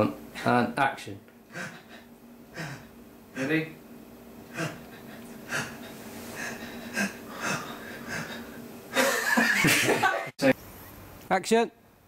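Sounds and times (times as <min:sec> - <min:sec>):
man breathing through nose: 0:04.5 - 0:08.6.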